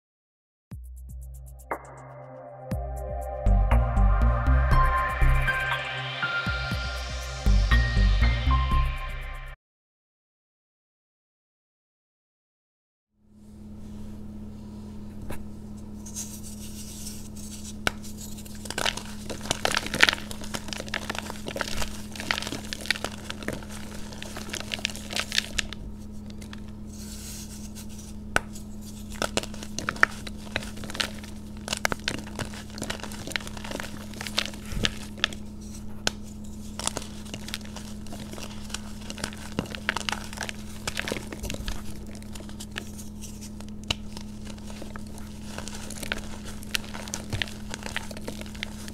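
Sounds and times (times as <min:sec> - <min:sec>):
steady low hum: 0:13.2 - 0:48.9
chalk crunching and crackling: 0:15.9 - 0:48.9.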